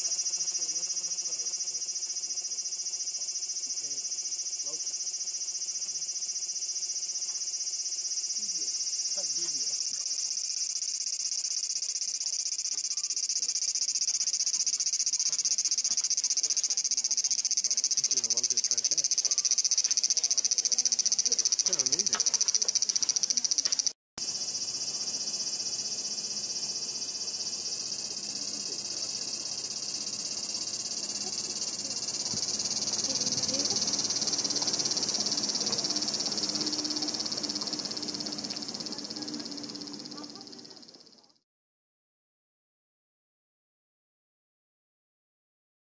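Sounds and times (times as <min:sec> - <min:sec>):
cicada buzzing: 0:00.0 - 0:41.2.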